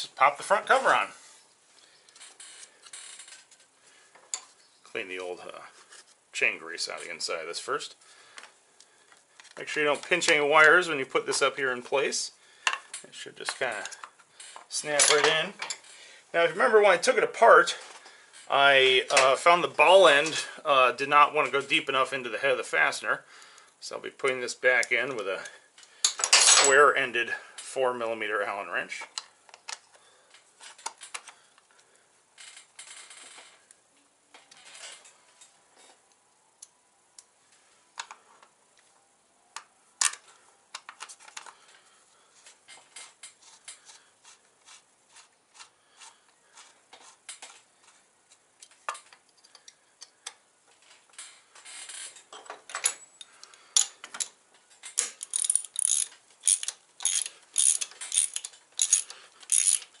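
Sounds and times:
hand tools clinking against metal: 0:26.0 - 0:26.9, 0:54.9 - 1:00.0
socket ratchet clicking: 0:55.0 - 0:59.9.

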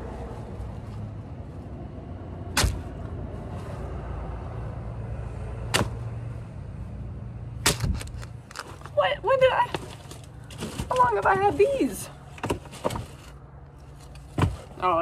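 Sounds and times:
sharp crinkles or knocks: 0:07.6 - 0:09.0.

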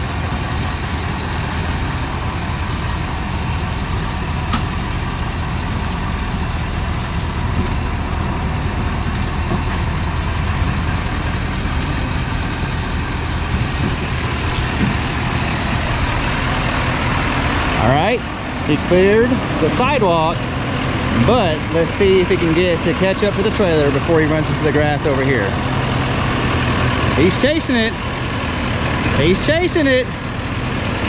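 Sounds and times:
diesel engine running at low revs: 0:00.0 - 0:31.0.

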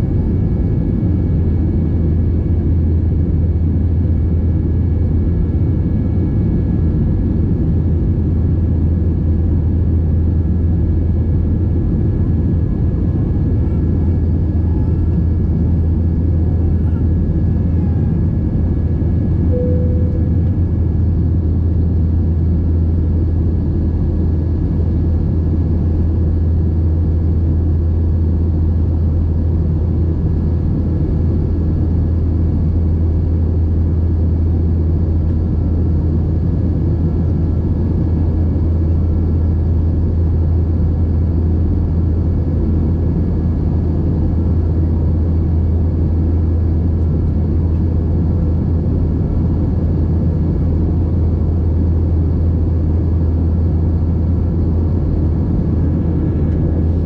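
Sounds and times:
airliner engine drone: 0:00.0 - 0:57.0
faint steady high tones: 0:19.5 - 0:20.7.

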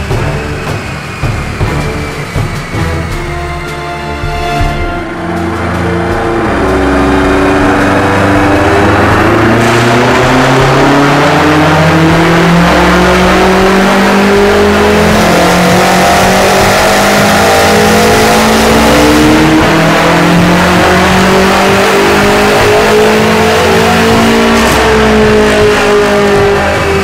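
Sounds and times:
car engine revving on dyno: 0:00.0 - 0:27.0.

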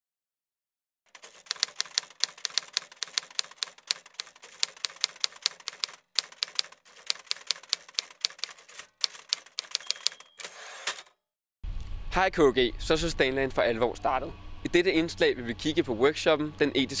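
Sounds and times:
typewriter keys clacking: 0:01.1 - 0:10.5.

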